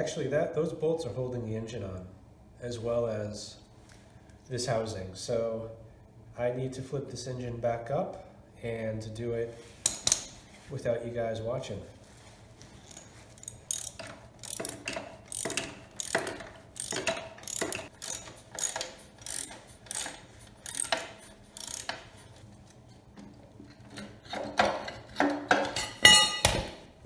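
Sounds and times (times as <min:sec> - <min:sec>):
ratchet wrench clicking: 0:12.8 - 0:22.4.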